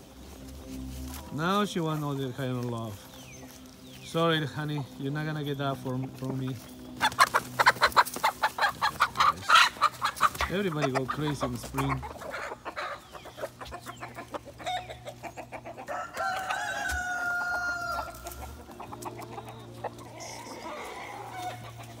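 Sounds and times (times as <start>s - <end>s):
poultry clucking: 0.0s - 22.0s
rooster crowing: 15.8s - 18.6s, 20.2s - 22.0s.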